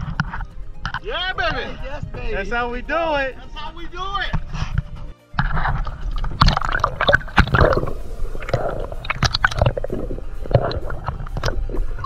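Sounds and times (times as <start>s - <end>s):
water sloshing and gurgling: 0.0s - 2.3s, 4.3s - 12.0s
sharp pops and splashes: 4.3s - 12.0s
steady low rumble: 6.0s - 12.0s.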